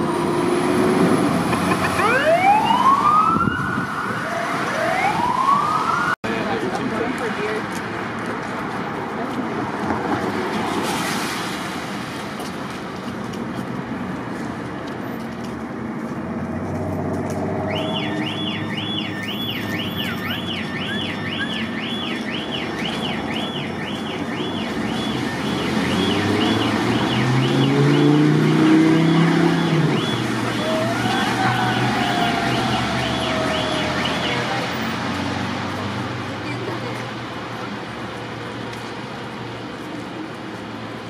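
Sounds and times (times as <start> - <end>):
city traffic: 0.0 - 41.0
fire truck siren yelping: 1.4 - 6.2, 17.7 - 34.9.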